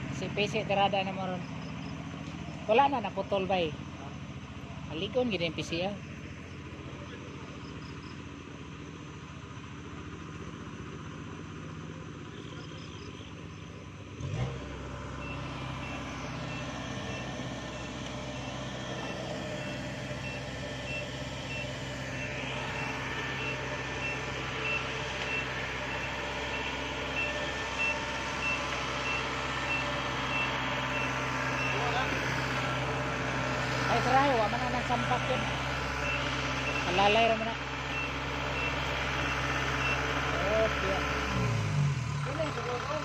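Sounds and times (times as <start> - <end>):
diesel engine running: 0.0 - 43.0
reversing alarm beeping: 15.2 - 32.1, 36.0 - 40.2.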